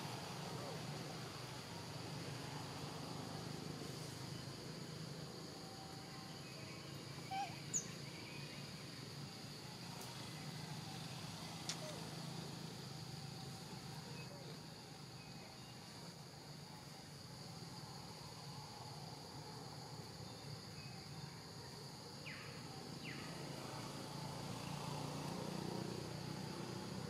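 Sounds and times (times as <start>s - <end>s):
faint sharp clicks: 11.6s - 11.8s.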